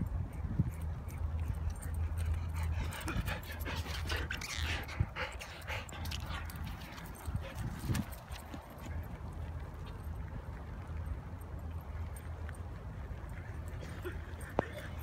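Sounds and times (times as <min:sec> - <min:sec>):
dog panting: 0:00.7 - 0:09.2.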